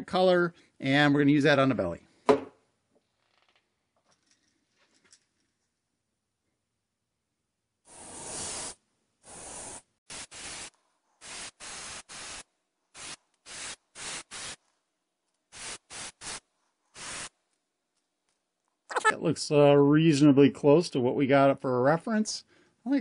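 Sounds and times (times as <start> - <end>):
airbrush spraying hiss: 7.9 - 14.6, 15.5 - 17.4.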